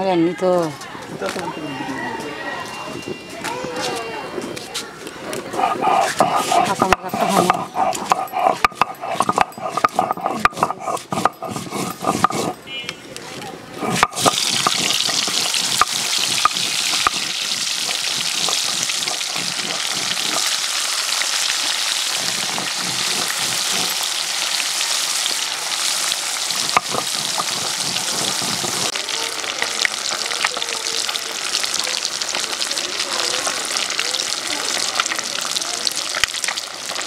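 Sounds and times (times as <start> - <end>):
oil spitting and crackling: 5.3 - 12.6, 13.7 - 37.0
fish sizzling in hot oil: 13.8 - 37.0.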